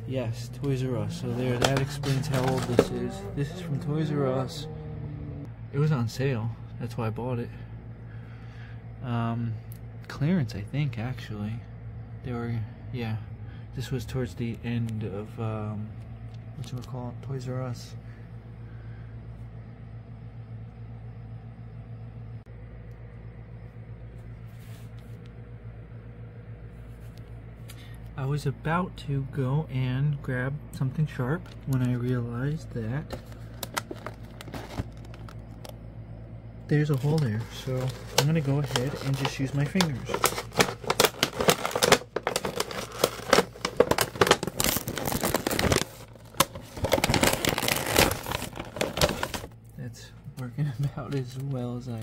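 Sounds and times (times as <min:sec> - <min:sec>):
steady low hum: 0:00.0 - 0:52.0
plastic package rustle: 0:01.2 - 0:03.0, 0:33.1 - 0:35.8, 0:36.8 - 0:49.6.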